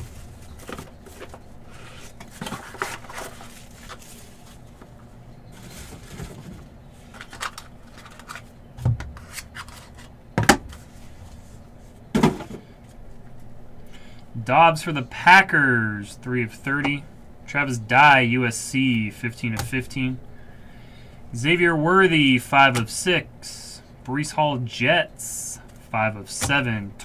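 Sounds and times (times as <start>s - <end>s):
plastic wrapping rustling: 0.0s - 8.5s.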